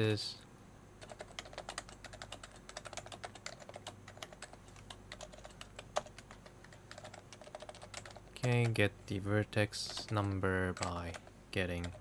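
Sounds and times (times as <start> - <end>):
typing on computer keyboard: 1.0 - 8.8, 9.8 - 12.0.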